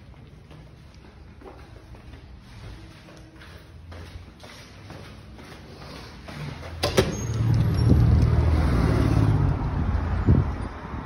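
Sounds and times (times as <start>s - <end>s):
vehicle engine passing: 5.8s - 11.0s.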